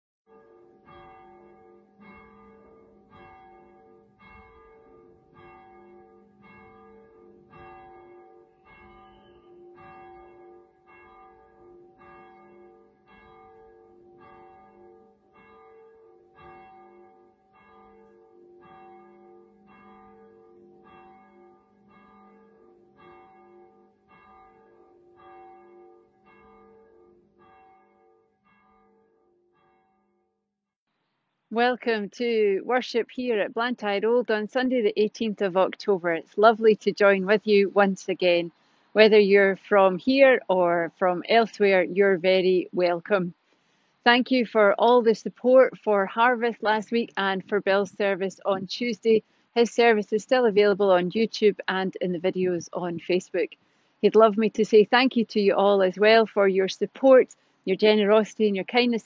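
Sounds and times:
church bell tolling: 0.3 - 30.0.

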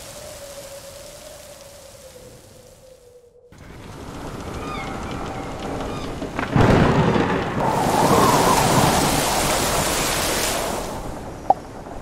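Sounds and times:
heavy rain downpour: 0.0 - 2.8, 3.6 - 12.0
thunder rumbling: 3.6 - 12.0.

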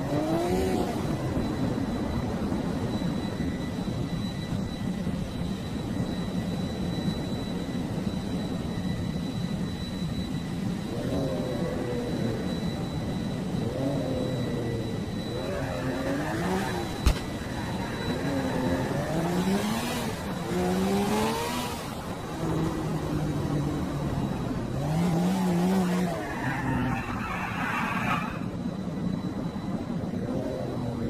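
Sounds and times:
engine revving: 13.6 - 22.8, 24.6 - 26.9.

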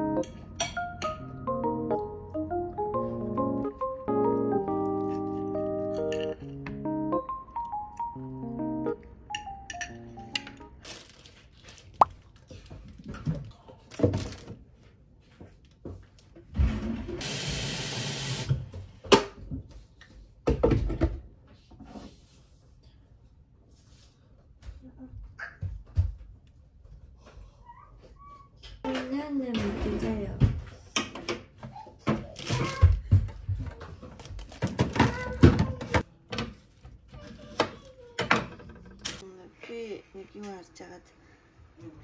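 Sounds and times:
plastic packaging rustling: 10.7 - 13.1, 13.8 - 14.7.

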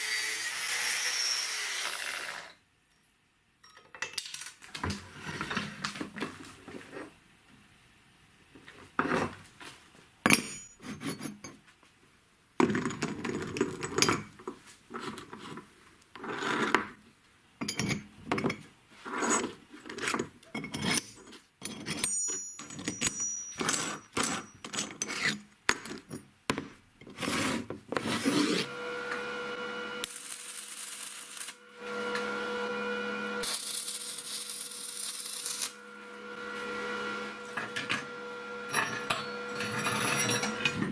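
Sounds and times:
steel parts clinking and knocking: 2.9 - 4.7, 10.3 - 11.6, 19.8 - 26.7, 38.7 - 40.9
welding arc crackling and hissing: 30.0 - 31.6, 33.4 - 35.8.

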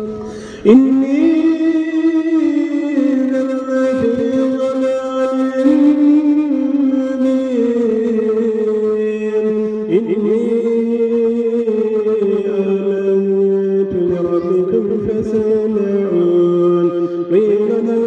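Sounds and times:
chant-like melody: 0.0 - 18.0.

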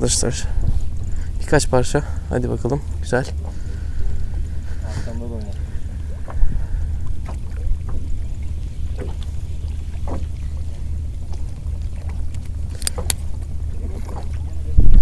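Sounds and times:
faint ticks: 0.0 - 14.9
boat engine droning: 0.0 - 15.0
sharp clicks: 12.3 - 13.4.

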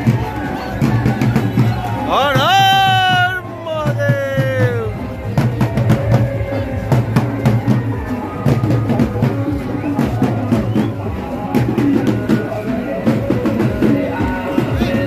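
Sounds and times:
music with rapid drumming: 0.0 - 15.0.

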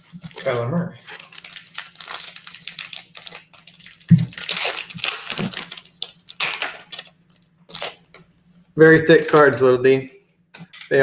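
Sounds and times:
foil wrapper crinkling: 0.1 - 8.1.

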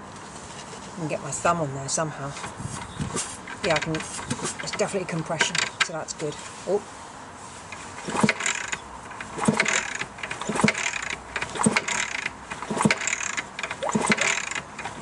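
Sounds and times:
engine kickstart turning over: 8.0 - 15.0.

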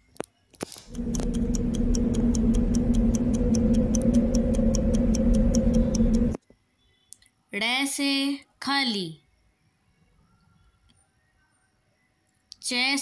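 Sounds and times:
steady low hum: 0.8 - 6.4
fast clock ticking: 0.9 - 6.4.

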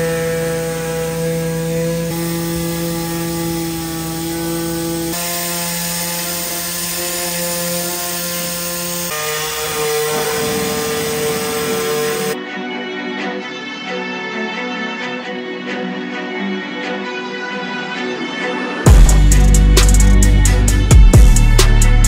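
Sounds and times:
machine hum: 0.0 - 12.4.

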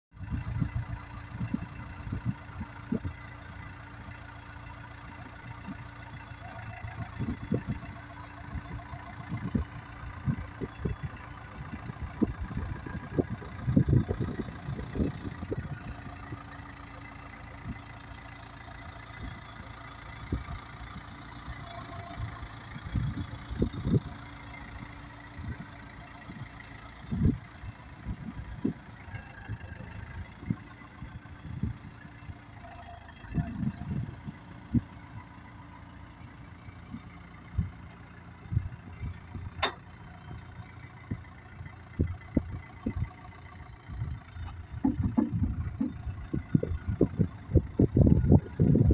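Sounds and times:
diesel engine running: 0.1 - 48.9
low thumps and knocks: 44.6 - 48.2.

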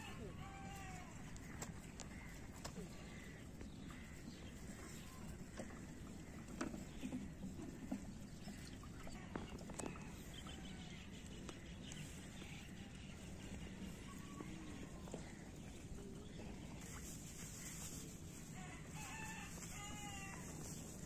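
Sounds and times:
faint chicken calls: 16.8 - 21.0.

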